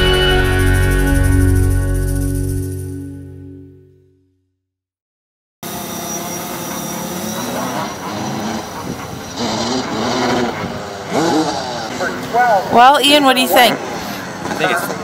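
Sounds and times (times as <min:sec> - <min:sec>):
quadcopter propellers buzzing: 0:05.6 - 0:14.9.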